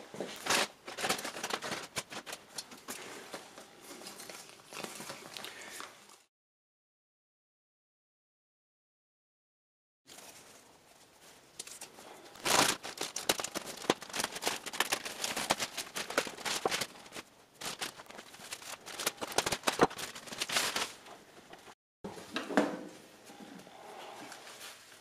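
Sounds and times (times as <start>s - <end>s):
plastic crackling and crinkling: 0.1s - 6.3s, 10.1s - 21.8s
knife slitting plastic wrapping: 0.4s - 2.4s, 12.4s - 21.1s.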